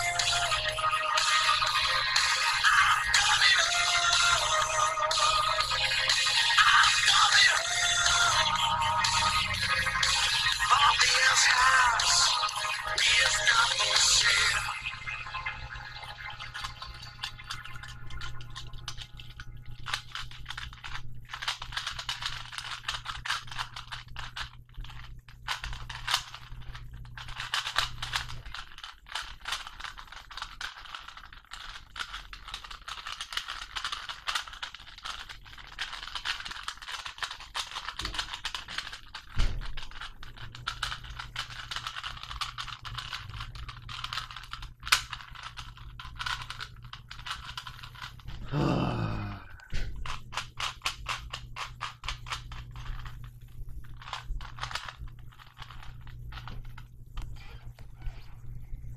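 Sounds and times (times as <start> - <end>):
puzzle cube plastic clicking: 16.5 - 48.5, 49.9 - 53.1, 53.9 - 57.6.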